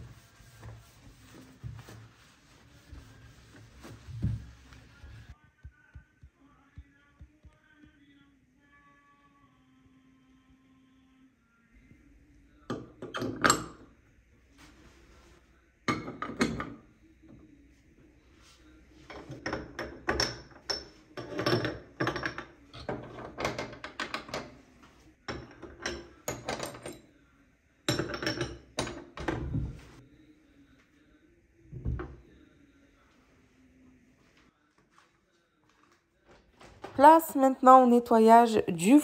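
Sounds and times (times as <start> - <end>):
metal burner parts clinking on glass: 25.4 - 27.0.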